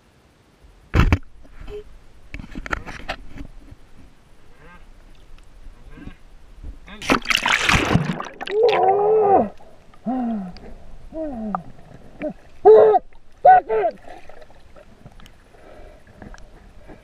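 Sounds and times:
faint water noise: 0.0s - 17.0s
muffled voices underwater: 8.4s - 14.7s.

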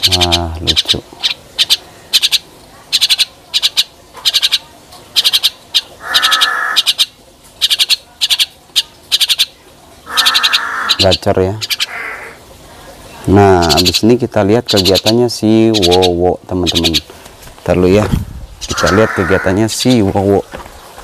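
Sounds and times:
birds chattering: 0.0s - 21.0s
bird harsh screeches: 6.0s - 7.0s, 10.1s - 12.4s, 18.6s - 19.6s.

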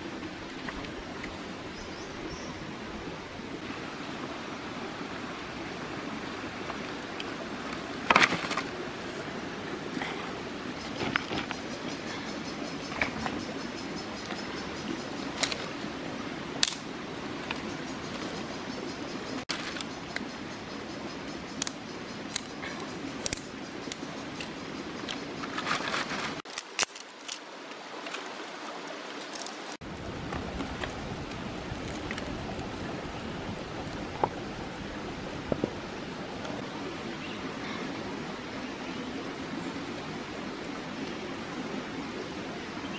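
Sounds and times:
stream running over rocks: 0.0s - 42.9s
stones and sticks clicking: 29.1s - 32.7s.

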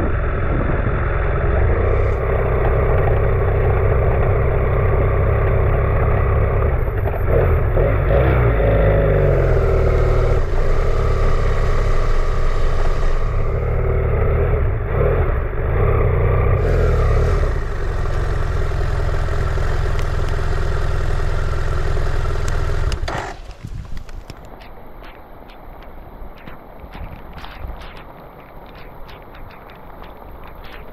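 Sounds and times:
motorcycle engine revving and idling: 0.0s - 23.9s.

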